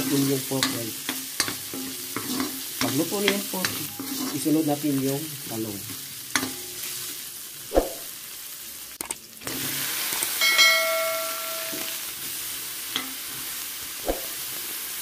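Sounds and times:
spatula scraping a metal pan: 0.0s - 4.6s
meat sizzling in oil: 0.0s - 15.0s
short bell-like chime: 10.4s - 12.0s.

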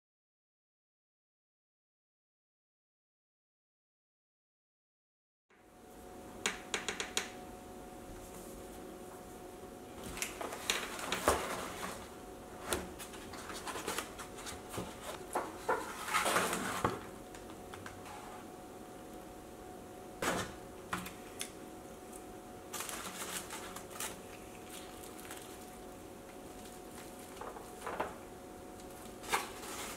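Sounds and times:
paper rustling: 10.2s - 17.0s, 22.7s - 25.9s, 28.8s - 29.9s.

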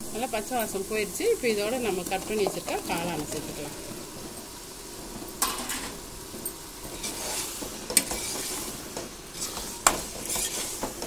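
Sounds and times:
mushrooms sizzling in a pot: 0.0s - 11.0s
metal spoon scraping a pot: 6.9s - 11.0s.

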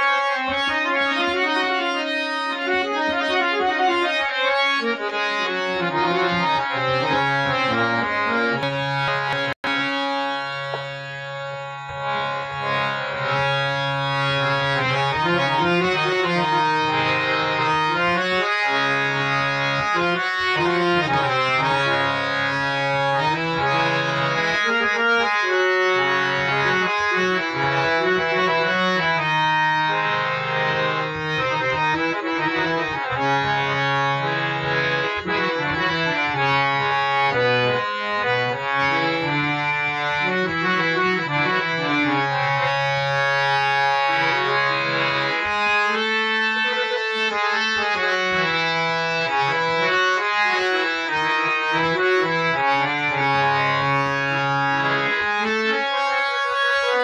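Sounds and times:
harmonium playing: 0.0s - 57.0s.

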